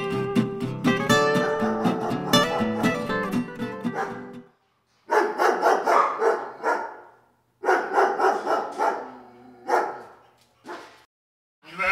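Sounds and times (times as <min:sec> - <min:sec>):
dog barking rapidly: 0:01.3 - 0:03.3, 0:03.9 - 0:04.3, 0:05.1 - 0:11.0.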